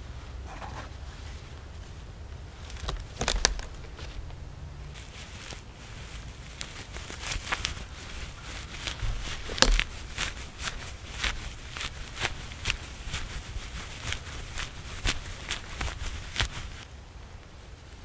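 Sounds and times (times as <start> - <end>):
dry bark crackling and rustling: 0.0 - 18.0
cloth bag crumpled: 4.9 - 16.8.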